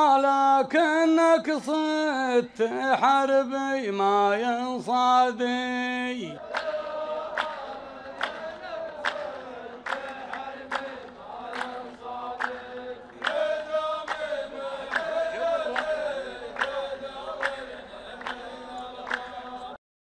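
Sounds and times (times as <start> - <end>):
men chanting in unison: 0.0 - 19.8
hand claps in unison: 6.4 - 19.8.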